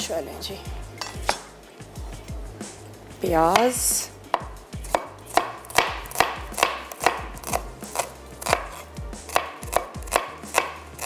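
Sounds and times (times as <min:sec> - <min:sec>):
knife chopping on cutting board: 0:03.5 - 0:11.0.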